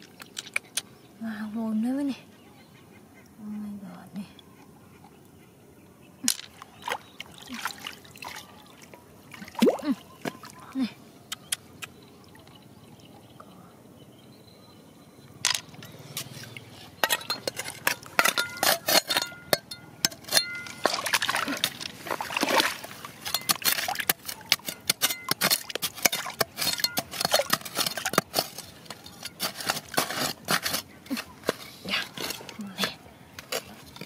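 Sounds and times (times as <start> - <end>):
trowel scraping gravel and stones: 15.5 - 34.0.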